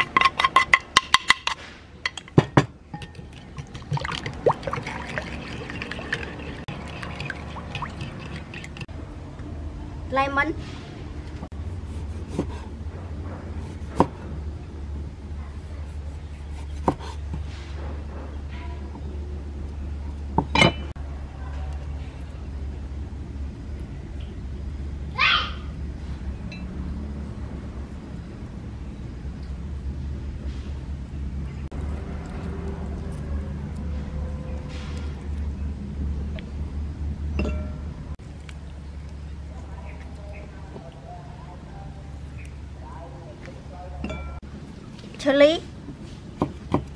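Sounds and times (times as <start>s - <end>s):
low steady hum: 0.0s - 46.9s
spoon stirring sauce in bowl: 3.0s - 8.9s
knife cutting on wooden board: 11.8s - 12.7s.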